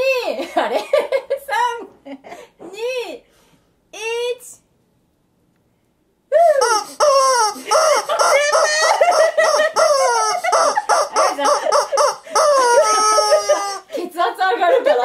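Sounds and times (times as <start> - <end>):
rubber chicken toy squawking: 6.6 - 13.9.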